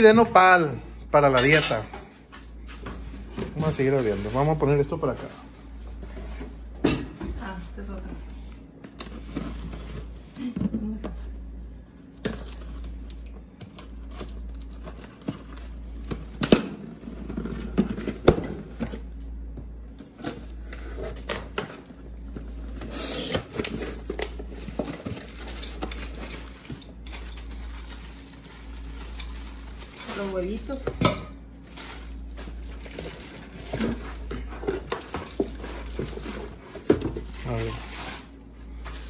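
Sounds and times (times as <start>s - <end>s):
plastic wrapping crinkling: 3.2s - 5.2s, 23.1s - 30.8s, 31.5s - 39.0s
knife slitting packing tape: 22.8s - 23.7s.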